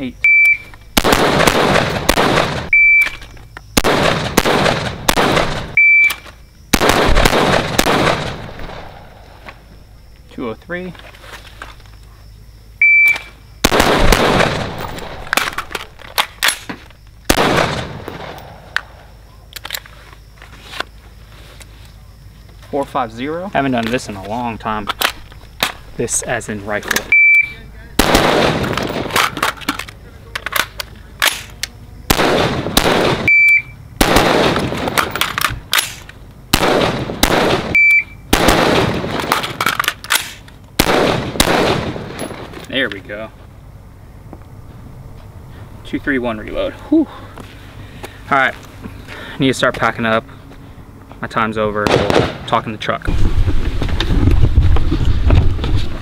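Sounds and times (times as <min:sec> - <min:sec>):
shot timer beep: 0:00.2 - 0:00.7, 0:02.7 - 0:03.2, 0:05.8 - 0:06.2, 0:27.1 - 0:27.6, 0:33.3 - 0:33.8, 0:37.8 - 0:38.2
rapid gunshots: 0:01.0 - 0:02.7, 0:03.8 - 0:05.8, 0:06.7 - 0:08.9, 0:13.6 - 0:15.2, 0:17.3 - 0:18.4, 0:28.0 - 0:29.2, 0:32.1 - 0:33.3, 0:34.0 - 0:35.2, 0:36.6 - 0:39.4, 0:40.8 - 0:42.1, 0:51.9 - 0:52.4
rifle shots echoing: 0:01.0 - 0:02.8, 0:03.8 - 0:05.8, 0:06.7 - 0:09.2, 0:13.6 - 0:15.6, 0:17.3 - 0:18.8, 0:28.0 - 0:29.5, 0:32.1 - 0:33.4, 0:34.0 - 0:42.5, 0:51.8 - 0:52.6.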